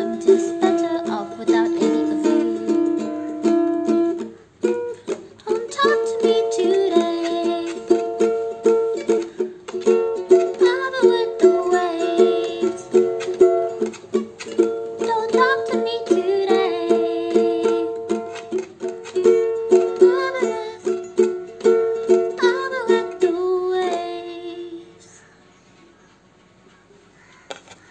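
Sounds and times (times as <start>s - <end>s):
woman singing: 0.0s - 3.4s, 5.1s - 8.3s, 10.2s - 13.2s, 14.9s - 25.2s
ukulele strumming: 0.0s - 25.2s.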